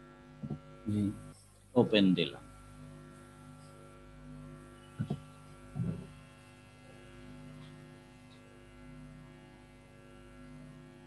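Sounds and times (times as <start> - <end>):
low electrical hum: 0.0 - 11.0
brief low thuds: 5.0 - 6.1.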